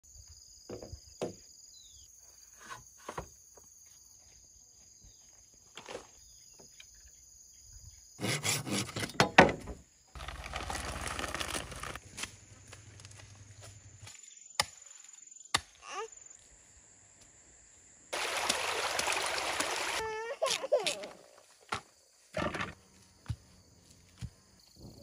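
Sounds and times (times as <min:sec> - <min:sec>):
insects chirring: 0:09.7 - 0:25.0.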